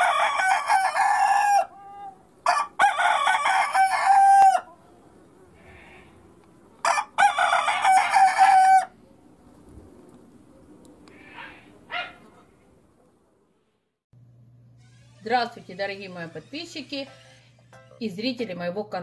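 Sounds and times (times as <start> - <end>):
rooster crowing: 0.0 - 4.8, 6.8 - 9.0.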